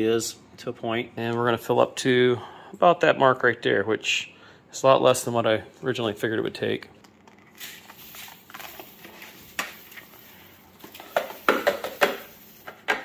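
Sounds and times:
resin beads pouring: 0:07.5 - 0:12.7
plastic tub clattering against funnel: 0:07.9 - 0:13.0.

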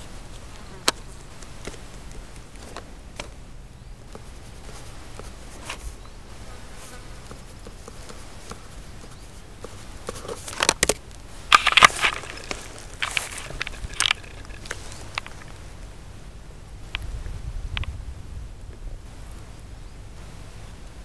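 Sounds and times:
rustles and knocks in vegetation: 0:00.0 - 0:15.9
flying insect buzzing faintly: 0:00.0 - 0:21.0.

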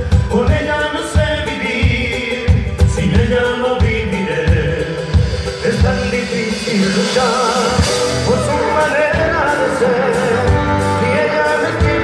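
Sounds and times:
drum kit: 0:00.0 - 0:12.0
man singing: 0:00.0 - 0:12.0
strummed guitars: 0:00.0 - 0:12.0
bass notes: 0:02.6 - 0:12.0.

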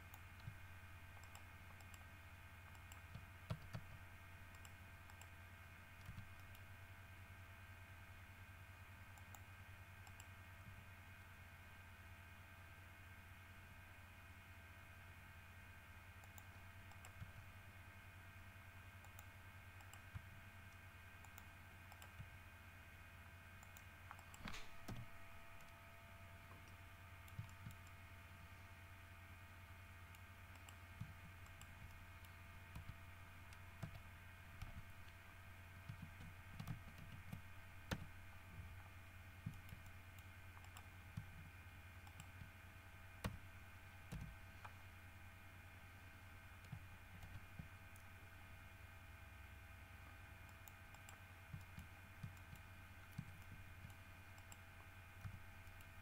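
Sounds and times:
steady low hum: 0:00.0 - 0:56.0
mouse and keyboard clicks: 0:00.1 - 0:02.1, 0:02.7 - 0:05.3, 0:06.0 - 0:06.7, 0:16.2 - 0:17.4, 0:23.6 - 0:25.8, 0:26.6 - 0:28.0, 0:35.9 - 0:38.1, 0:39.4 - 0:42.5, 0:50.5 - 0:56.0.

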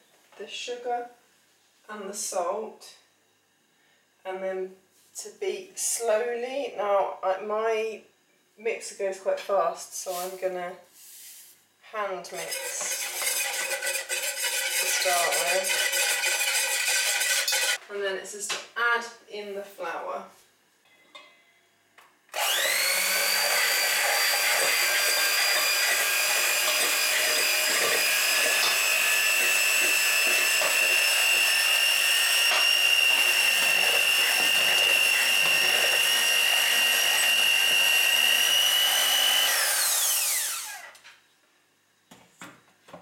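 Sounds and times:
electric hand mixer whining: 0:12.4 - 0:17.8, 0:22.3 - 0:41.0.

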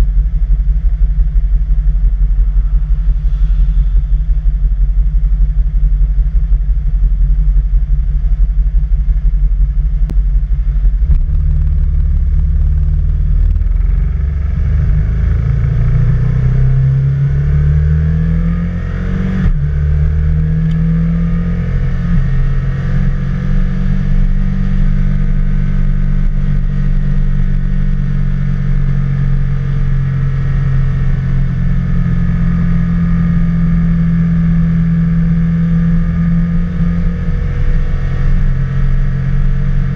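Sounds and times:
motorcycle engine rumbling: 0:00.0 - 0:17.4, 0:19.3 - 0:39.9.

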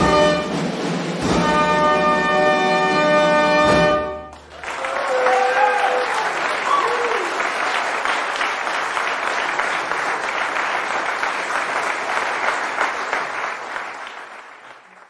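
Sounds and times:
audience applauding: 0:04.3 - 0:15.0.

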